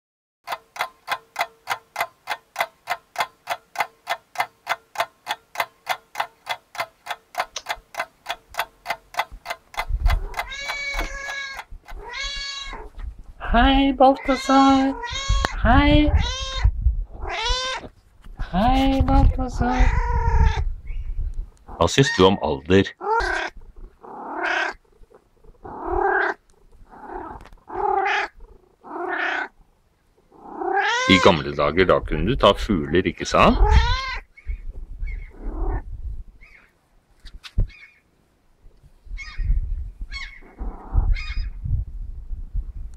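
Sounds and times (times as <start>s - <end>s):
clock ticking: 0.4s - 12.0s
cat meowing: 10.2s - 12.9s, 14.2s - 17.9s, 19.6s - 20.7s, 23.0s - 24.8s, 27.0s - 29.5s, 30.4s - 31.4s, 33.5s - 34.3s.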